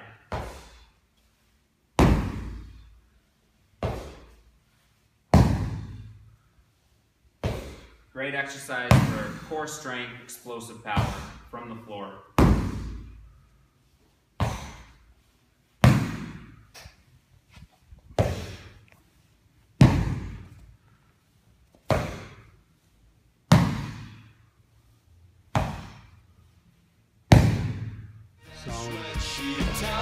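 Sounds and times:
hammer thudding on foam mats: 2.0 - 2.8, 5.3 - 6.0, 12.4 - 13.2, 25.5 - 26.1.

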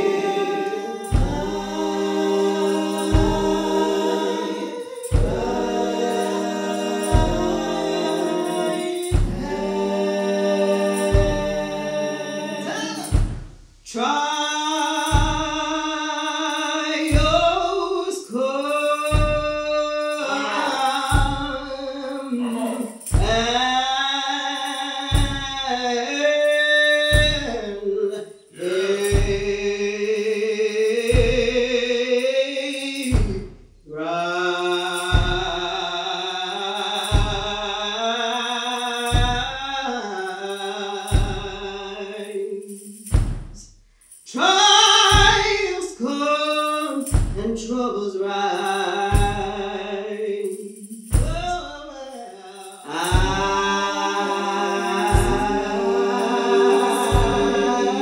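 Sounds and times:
slow hymn singing: 0.0 - 43.3, 44.1 - 58.0
heavy foot stomps: 1.2 - 1.7, 5.1 - 5.8, 9.0 - 9.8, 13.1 - 13.9, 23.0 - 23.6, 33.2 - 33.8, 43.1 - 43.7, 47.1 - 47.5.

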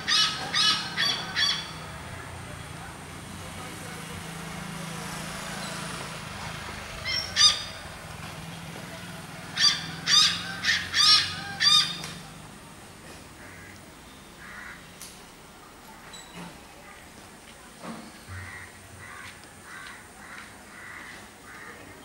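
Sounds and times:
hornbill calling: 0.0 - 2.0, 6.9 - 8.0, 9.5 - 12.4.

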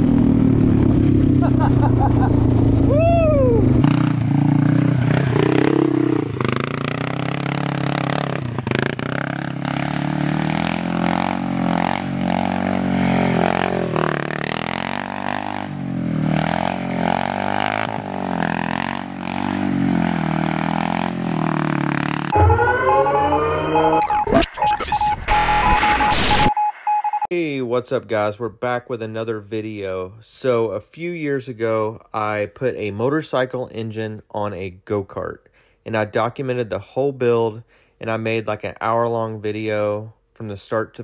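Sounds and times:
go-kart engine revving: 0.0 - 22.3.

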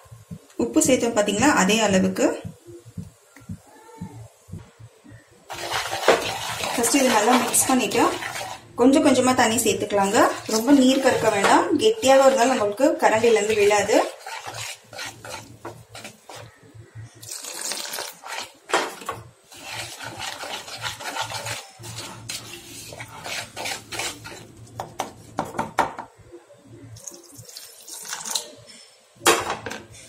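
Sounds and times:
whisk scraping a ceramic bowl: 5.5 - 24.8
water trickling into a bowl: 27.0 - 28.5.

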